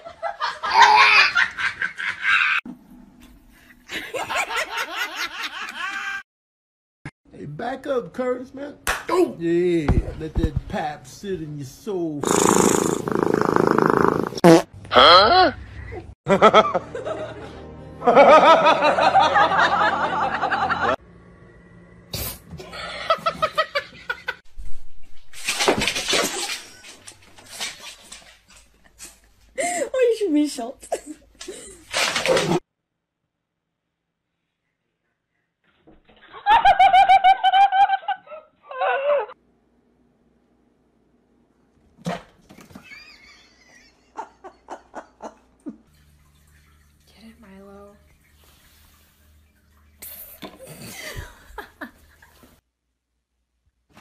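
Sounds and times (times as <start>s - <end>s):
high-pitched pulsed laughter: 36.6s - 39.4s.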